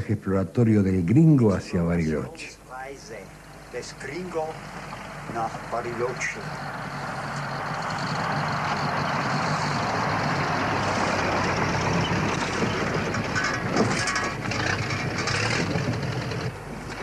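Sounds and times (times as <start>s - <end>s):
truck engine humming: 0.0s - 17.0s
truck body clattering: 11.4s - 17.0s.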